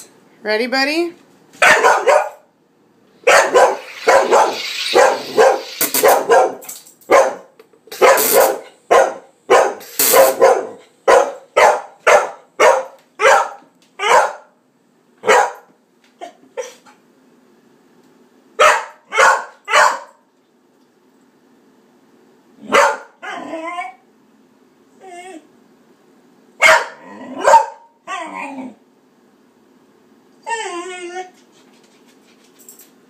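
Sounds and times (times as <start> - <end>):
dog barking: 1.6 - 2.5, 3.2 - 14.6, 15.2 - 15.7, 18.6 - 20.2, 22.6 - 23.2, 26.6 - 27.9
soda maker hissing: 3.7 - 6.3, 7.9 - 8.6, 9.8 - 10.4.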